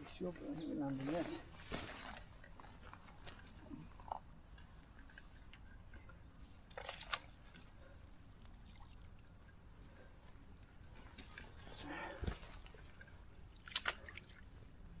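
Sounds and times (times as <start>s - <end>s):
small birds chirping: 0.0s - 6.7s.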